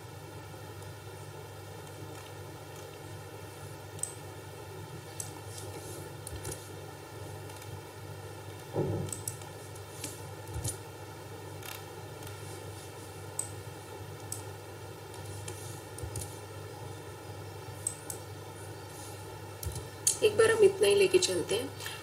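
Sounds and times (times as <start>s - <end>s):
room hum and hiss: 0.0s - 22.0s
mouse and keyboard clicks: 9.0s - 10.8s.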